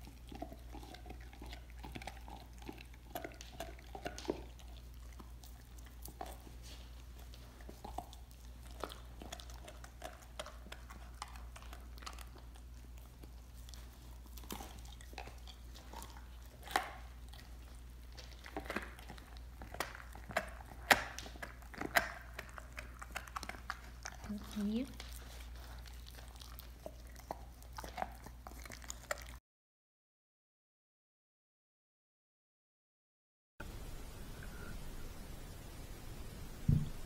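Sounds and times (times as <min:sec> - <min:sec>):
dog chewing a bone: 0:00.0 - 0:29.4
teeth cracking on bone: 0:00.0 - 0:29.4.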